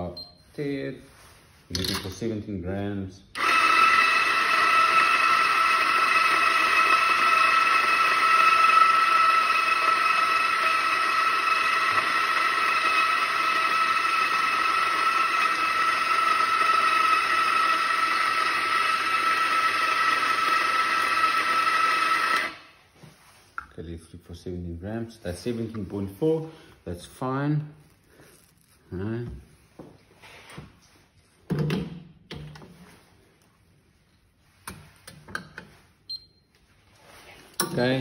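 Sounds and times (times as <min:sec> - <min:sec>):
coffee grinder whining: 0:03.4 - 0:22.7.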